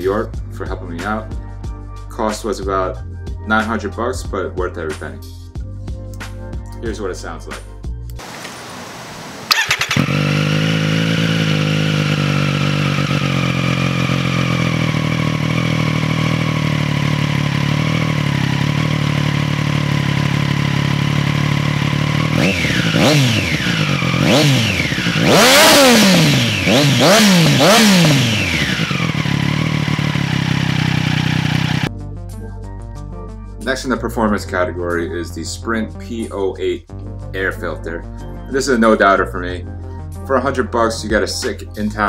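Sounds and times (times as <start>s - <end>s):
motorcycle engine revving: 8.2s - 31.9s
motorcycle engine idling: 8.9s - 31.9s.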